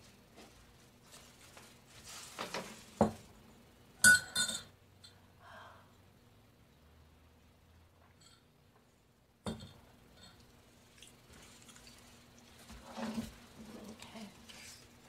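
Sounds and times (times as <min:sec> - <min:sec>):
soft rustle: 0:00.0 - 0:03.0, 0:11.3 - 0:15.0
cup clinking: 0:04.0 - 0:05.2.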